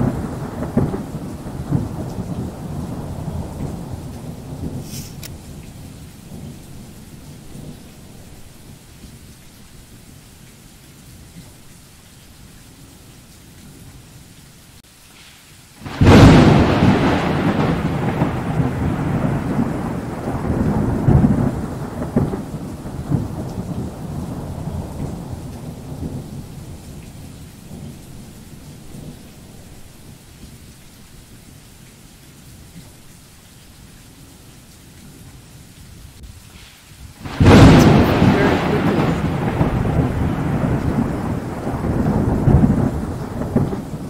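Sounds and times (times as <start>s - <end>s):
thunder crack and rumble: 0.0s - 7.8s, 15.8s - 29.6s, 37.1s - 44.0s
steady rain hissing: 0.0s - 44.0s.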